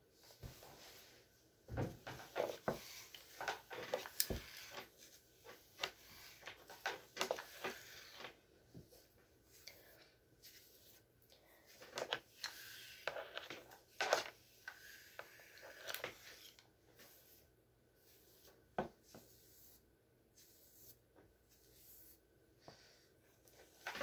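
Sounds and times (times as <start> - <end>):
hair rustling in flat iron: 2.0 - 19.8.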